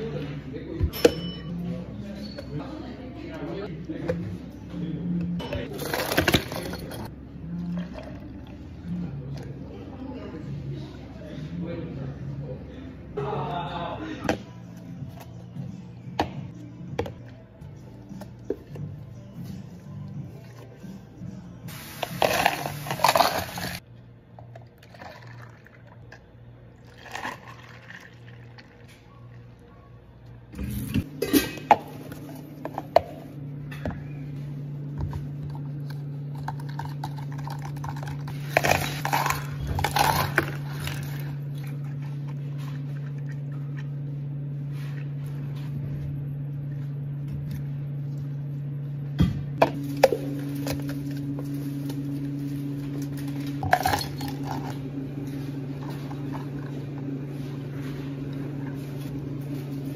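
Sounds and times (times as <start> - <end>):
low machine hum: 0.0 - 59.9
bar spoon clinking: 0.9 - 1.6
ice clattering in cups: 5.7 - 7.1, 22.0 - 23.8, 24.8 - 26.2, 26.8 - 28.9, 36.4 - 41.4, 53.0 - 54.8.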